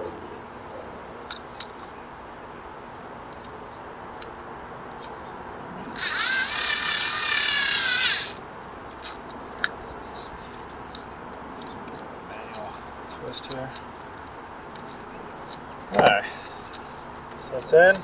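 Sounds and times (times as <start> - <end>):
cordless screwdriver motor whine: 5.9 - 8.4.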